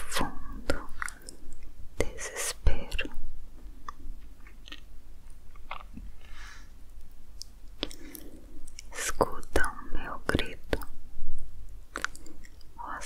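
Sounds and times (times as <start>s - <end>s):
low steady hum: 0.0s - 13.0s
wet mouth clicks and lip smacks: 5.5s - 6.0s, 8.7s - 9.7s, 11.9s - 12.7s
soft breathy exhale: 6.2s - 6.8s.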